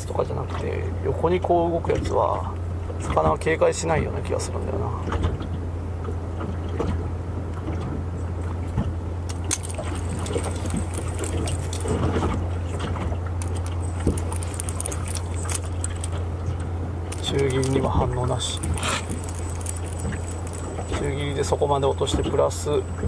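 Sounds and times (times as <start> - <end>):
steady low hum: 0.0 - 23.0
fishing reel clicking and rattling: 9.3 - 12.1, 13.4 - 16.3, 17.1 - 22.8.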